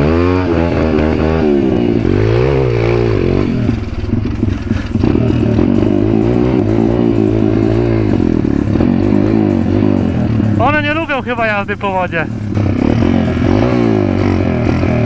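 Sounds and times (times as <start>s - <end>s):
motorbike engine revving: 0.0s - 15.0s
rattling clatter: 0.5s - 13.9s.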